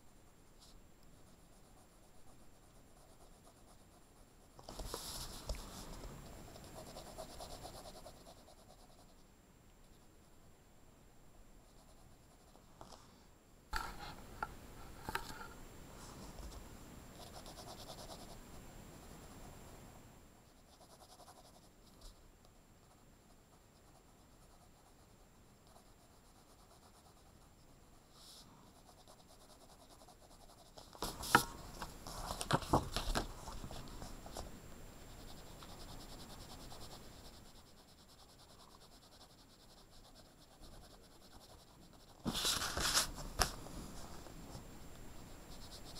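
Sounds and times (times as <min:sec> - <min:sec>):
pencil scratching on paper: 0:01.1 - 0:09.2, 0:17.2 - 0:19.4, 0:20.5 - 0:22.2, 0:22.8 - 0:32.5, 0:35.1 - 0:43.4, 0:45.1 - 0:45.9.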